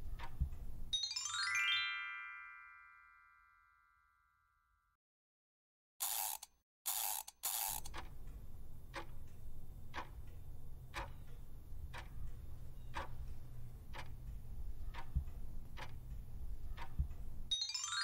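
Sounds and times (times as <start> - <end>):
clock ticking: 0.0 - 1.0, 6.4 - 17.6
steady low hum: 8.0 - 17.5.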